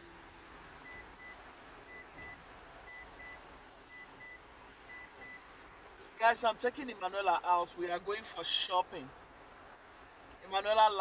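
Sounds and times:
car warning chime beeping: 0.8 - 5.5.

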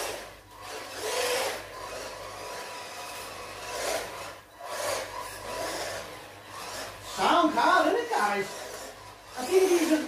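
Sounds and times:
electric motor whining: 0.0 - 10.0
tyres scrubbing on floor: 0.0 - 10.0.

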